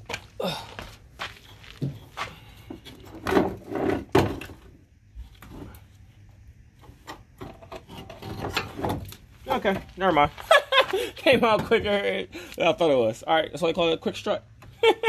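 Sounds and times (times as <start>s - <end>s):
metal knocks and clunks: 1.8s - 4.7s, 6.9s - 9.9s.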